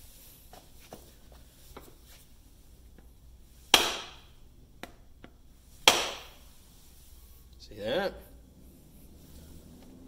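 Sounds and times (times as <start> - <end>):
mallet knocking wooden handle: 3.7 - 4.2, 5.9 - 6.3.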